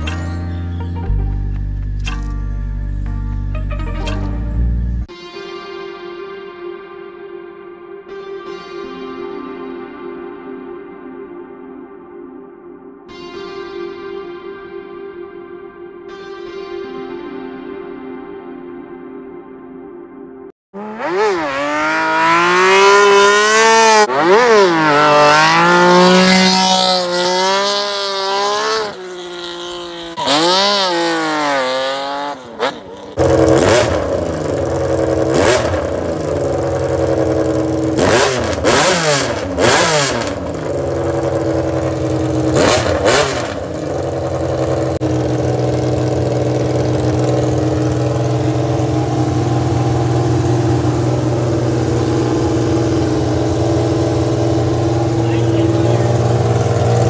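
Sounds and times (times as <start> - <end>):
motorcycle engine revving: 20.8 - 57.0.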